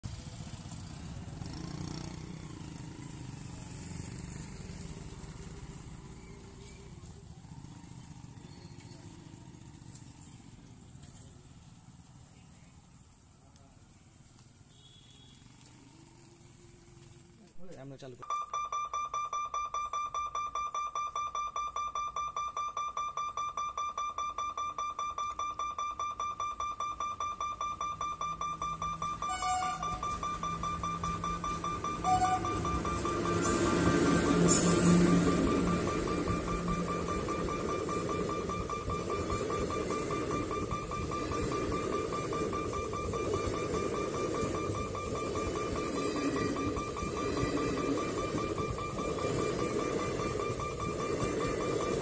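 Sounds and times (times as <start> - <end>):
road traffic rumble: 0.0 - 17.6, 27.4 - 52.0
motorcycle and scooter engines: 0.0 - 17.7, 26.2 - 52.0
level crossing alarm beeping: 18.2 - 52.0.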